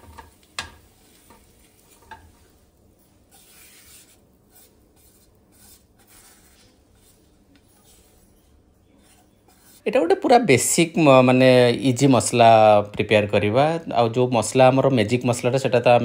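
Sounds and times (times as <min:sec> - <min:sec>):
spatula scraping a frying pan: 0:00.0 - 0:10.0.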